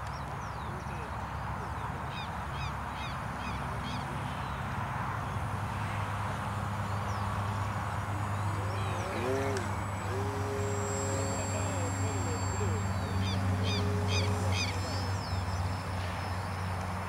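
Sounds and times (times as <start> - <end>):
open-air noise: 0.0 - 17.0
low hum: 6.4 - 17.0
bird chirping: 6.8 - 17.0.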